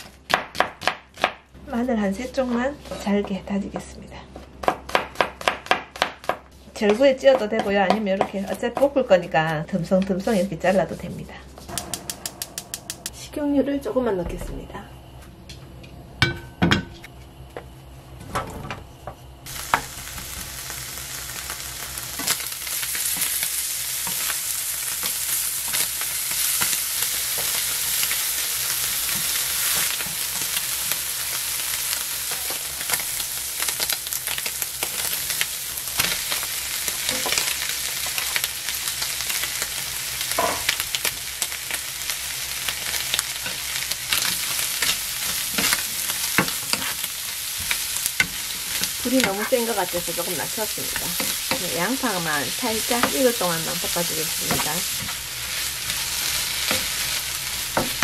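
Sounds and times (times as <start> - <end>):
food sizzling in oil: 19.4 - 58.0
tongs and spatula clicking and scraping: 43.0 - 51.9.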